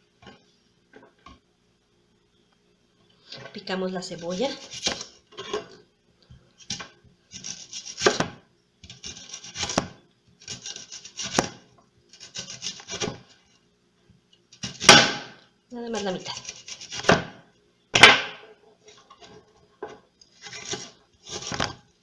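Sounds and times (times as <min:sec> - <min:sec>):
knife slicing onion: 0:04.2 - 0:05.2, 0:06.6 - 0:11.6, 0:12.2 - 0:13.3, 0:14.6 - 0:15.4, 0:16.0 - 0:17.4, 0:20.4 - 0:21.8.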